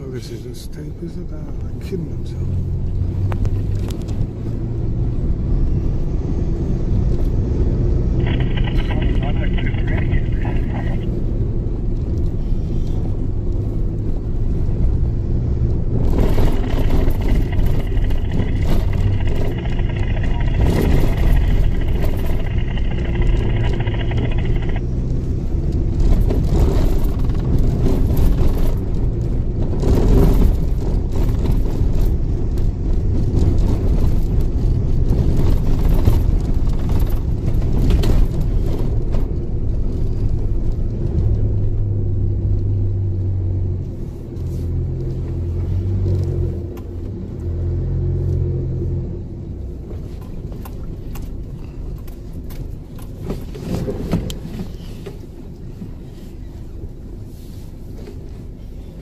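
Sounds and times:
engine and tyre rumble: 0.0s - 59.0s
knocks and rattles: 16.0s - 24.8s.

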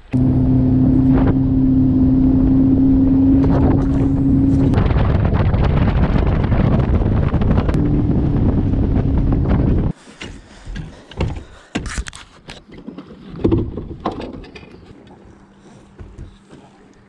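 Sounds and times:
outboard motor hum: 0.0s - 11.6s, 12.6s - 17.0s
wind on microphone: 0.1s - 10.0s.

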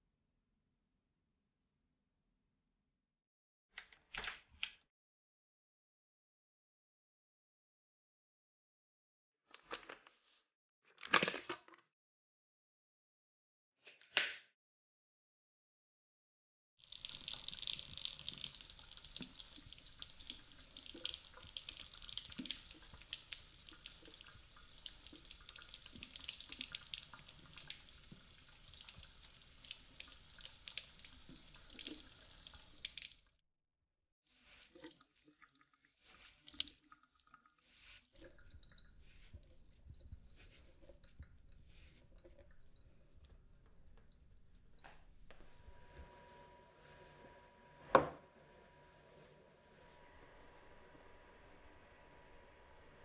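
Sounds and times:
water drips and clicks: 16.8s - 33.3s, 34.6s - 45.4s
tap water splashing: 17.0s - 33.2s.

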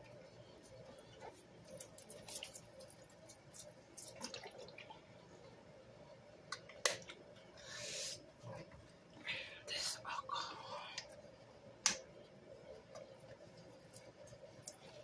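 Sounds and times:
liquid dripping and splashing: 1.6s - 5.1s.

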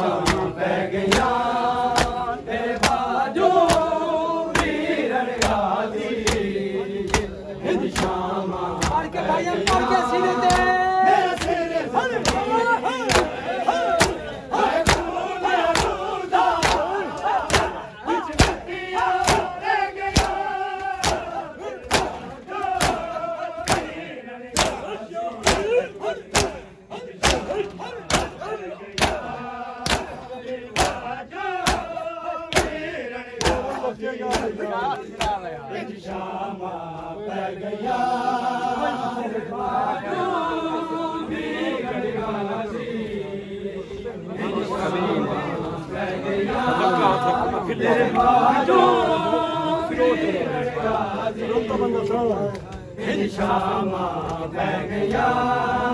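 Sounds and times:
men slapping chests in unison: 0.0s - 37.2s, 49.9s - 55.9s
men chanting and crying out: 0.0s - 55.9s.

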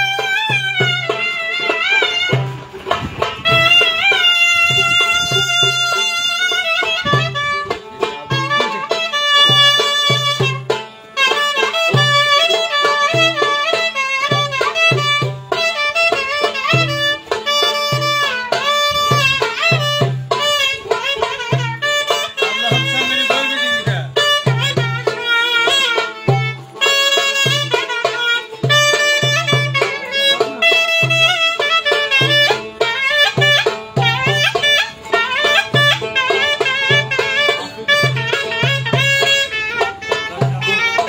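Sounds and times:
clarinet melody: 0.0s - 41.0s
steady drum beat: 0.0s - 41.0s.

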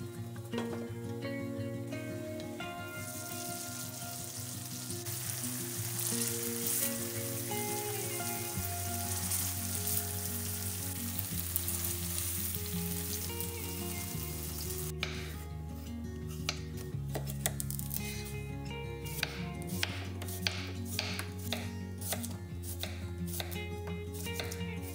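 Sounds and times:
background music: 0.0s - 24.9s
chicken sizzling in a frying pan: 2.9s - 14.9s.

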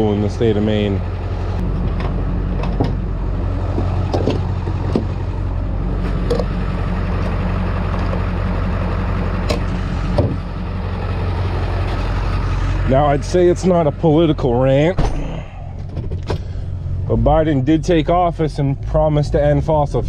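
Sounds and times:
truck engine droning: 0.0s - 20.0s.

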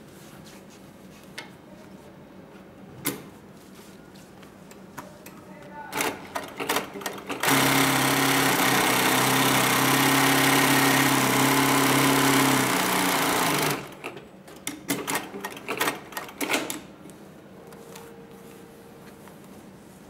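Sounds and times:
sewing machine running: 6.0s - 14.1s.

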